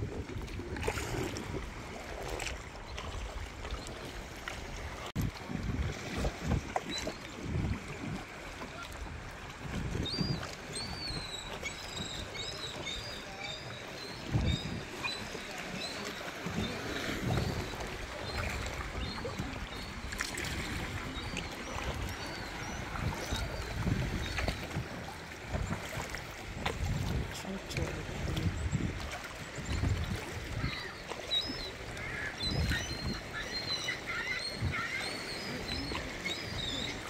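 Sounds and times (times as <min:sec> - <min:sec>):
wind on microphone: 0:00.0 - 0:03.8, 0:04.7 - 0:13.4, 0:14.0 - 0:30.9, 0:31.7 - 0:37.0
kayak paddle strokes: 0:00.0 - 0:37.0
water splashing against hull: 0:00.0 - 0:37.0.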